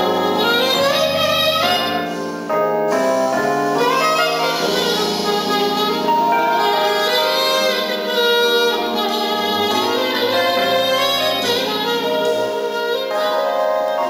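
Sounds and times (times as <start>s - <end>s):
accompanying instruments: 0.0s - 14.0s
alto saxophone melody: 0.0s - 14.0s.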